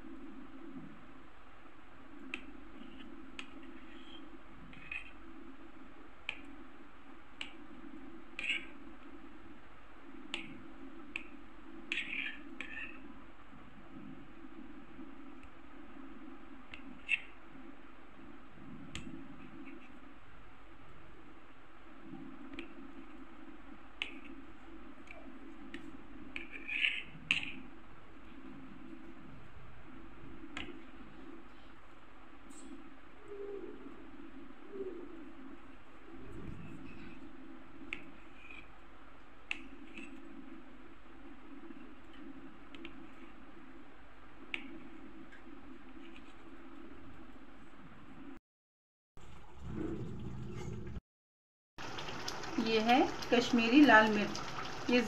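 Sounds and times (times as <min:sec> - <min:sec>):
knife scrape: 0:03.8 - 0:05.2, 0:08.4 - 0:08.8, 0:11.9 - 0:13.0, 0:26.4 - 0:27.6.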